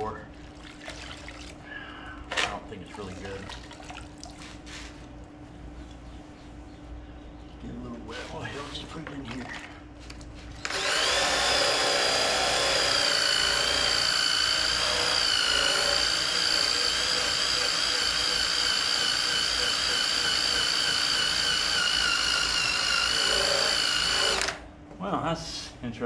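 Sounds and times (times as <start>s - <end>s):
drill motor whining: 10.6s - 24.6s.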